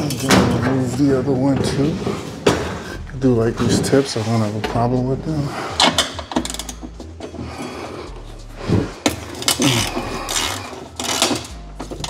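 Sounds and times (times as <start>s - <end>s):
hand tools clinking on metal: 0.0s - 1.0s.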